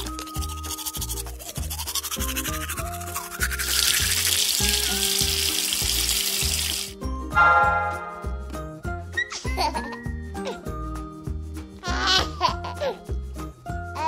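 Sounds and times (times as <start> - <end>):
toothbrush scrubbing: 0.0 - 6.9
background music with steady beat: 0.0 - 14.0
running water hiss: 2.2 - 7.0
bright multi-tone sound: 7.3 - 8.4.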